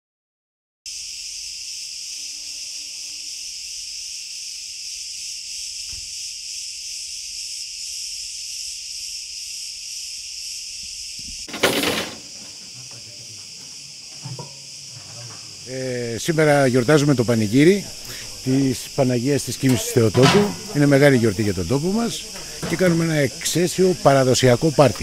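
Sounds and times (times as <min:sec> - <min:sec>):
cicadas buzzing: 0:00.9 - 0:25.0
faint knock: 0:11.2 - 0:15.6.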